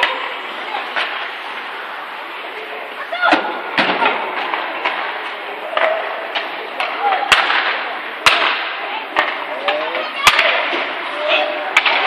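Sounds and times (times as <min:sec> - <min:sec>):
hockey sticks clacking on puck: 0:00.9 - 0:01.2, 0:03.8 - 0:12.0
players shouting: 0:05.6 - 0:12.0.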